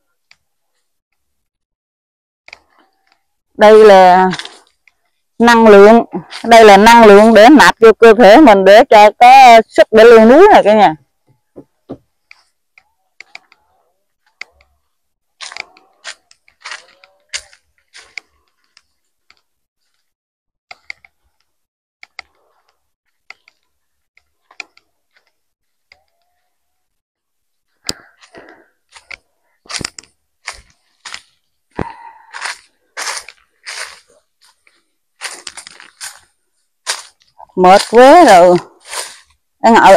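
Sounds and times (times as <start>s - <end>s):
footsteps crunching on dry leaves: 15.4s - 18.5s, 28.0s - 39.4s.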